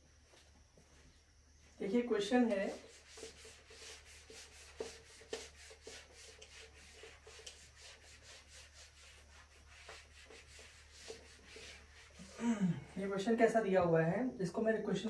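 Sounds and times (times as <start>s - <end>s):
eraser wiping whiteboard: 2.4s - 12.4s.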